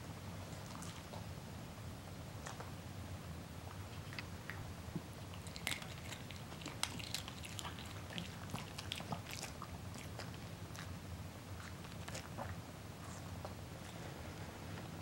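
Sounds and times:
dog crunching treat: 0:05.2 - 0:11.0, 0:11.6 - 0:13.2.

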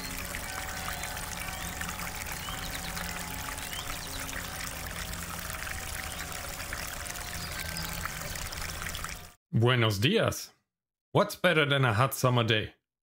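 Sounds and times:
water pouring into fountain basin: 0:00.0 - 0:09.4.

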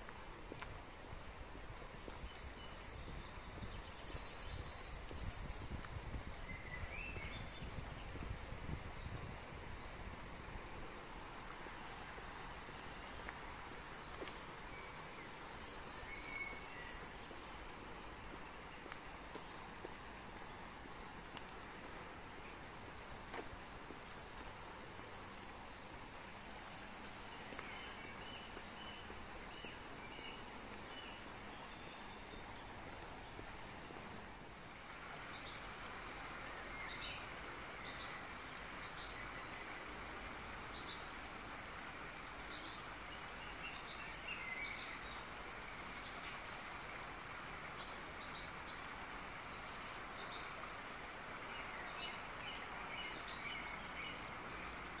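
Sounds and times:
outdoor background hiss: 0:00.0 - 0:55.0
birds chirping: 0:02.1 - 0:20.8, 0:21.7 - 0:34.6.

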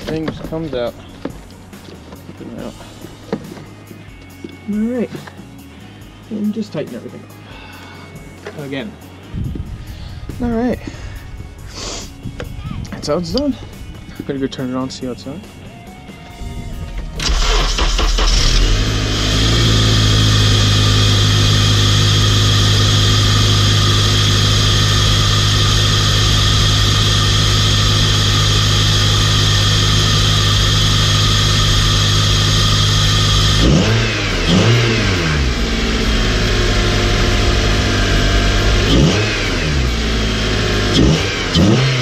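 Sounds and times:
car engine starting and idling: 0:16.2 - 0:42.0
car engine revving: 0:16.4 - 0:42.0.

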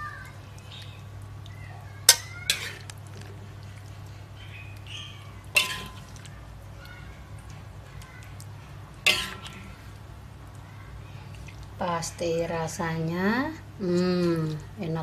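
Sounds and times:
spatula clinking on wok and bowl: 0:02.1 - 0:02.9, 0:05.5 - 0:06.1, 0:09.0 - 0:09.6.

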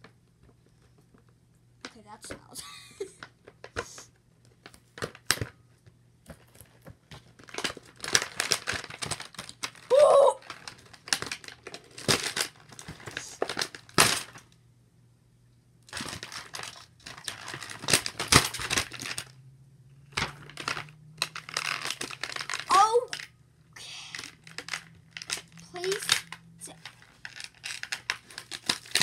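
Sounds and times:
plastic packaging crinkling: 0:06.3 - 0:14.5, 0:15.9 - 0:19.3, 0:20.1 - 0:23.3, 0:24.1 - 0:29.0.

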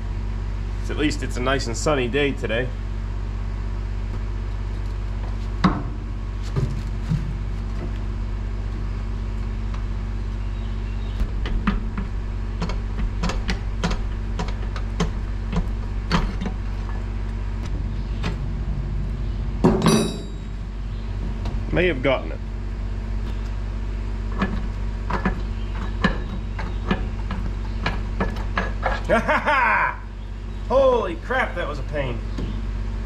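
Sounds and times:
steady low hum: 0:00.0 - 0:33.0
pry bar clanking on metal: 0:19.7 - 0:20.6.

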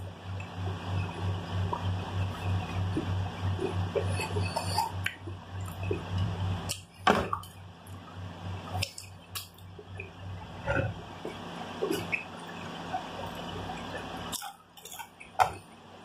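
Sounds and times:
low pulsing hum: 0:00.0 - 0:16.0
chewing chips: 0:13.3 - 0:15.6.

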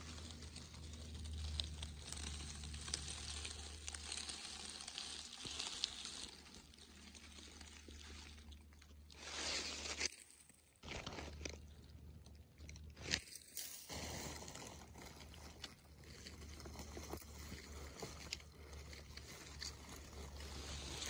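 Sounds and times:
dry leaves rustling: 0:00.0 - 0:11.9, 0:12.6 - 0:21.0.

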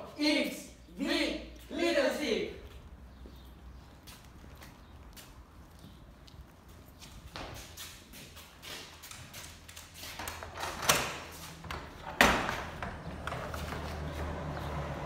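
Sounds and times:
door latch and boards clattering: 0:10.4 - 0:13.8.

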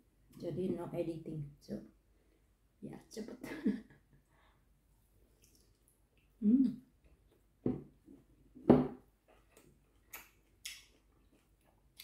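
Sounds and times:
lip smacks: 0:09.6 - 0:11.0.

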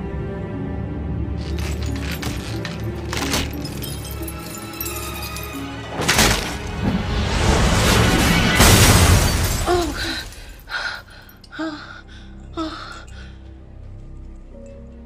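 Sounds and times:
glass chandelier crashing: 0:01.4 - 0:06.8, 0:08.0 - 0:10.5
woman gasping: 0:09.7 - 0:13.4.

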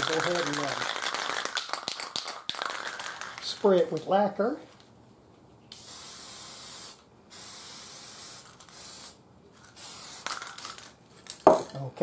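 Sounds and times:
lacquer spray hissing: 0:05.7 - 0:11.0.

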